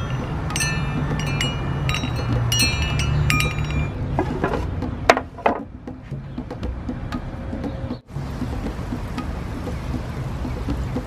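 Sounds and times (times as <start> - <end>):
metal wind chimes clinking: 0.0 - 4.4
knocks: 3.4 - 7.8.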